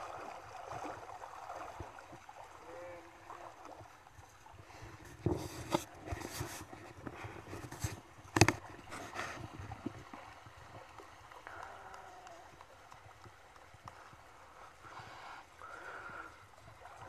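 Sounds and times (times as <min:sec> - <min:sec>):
river water splashing: 0:00.0 - 0:17.0
water lapping: 0:00.0 - 0:17.0.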